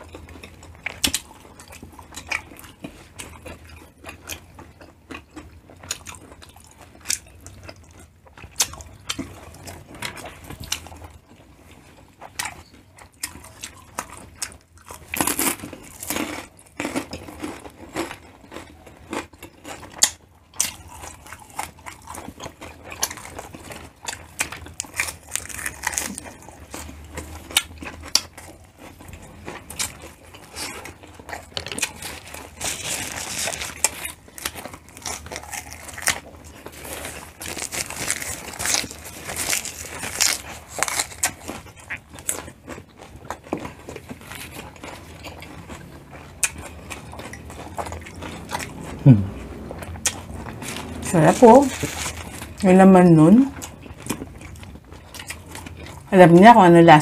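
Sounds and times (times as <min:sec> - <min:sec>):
close chewing and biting: 0:00.0 - 0:57.0.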